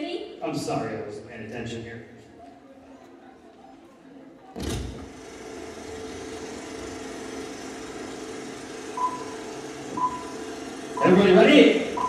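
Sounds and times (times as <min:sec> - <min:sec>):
television static hiss: 0:04.6 - 0:12.0
faint steady hum: 0:07.8 - 0:12.0
short high beeps: 0:09.0 - 0:10.4.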